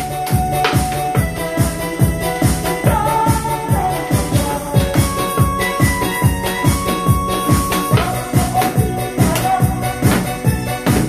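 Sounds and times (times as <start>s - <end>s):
backing track with steady beat: 0.0s - 11.0s
drum beating: 0.0s - 11.0s
woman singing: 2.2s - 5.9s, 7.8s - 11.0s.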